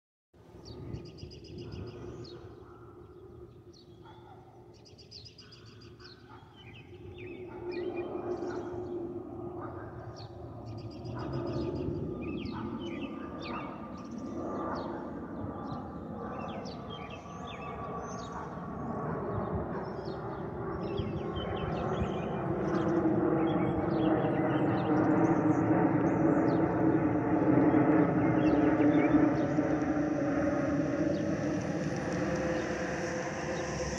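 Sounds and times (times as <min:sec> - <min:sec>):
small birds chirping: 0:00.6 - 0:33.9
jet passing overhead: 0:06.8 - 0:33.9.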